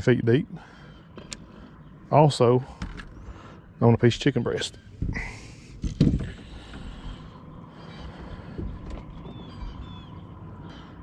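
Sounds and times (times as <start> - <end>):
faint steady whine: 0.0 - 11.0
boat motor running: 4.5 - 11.0.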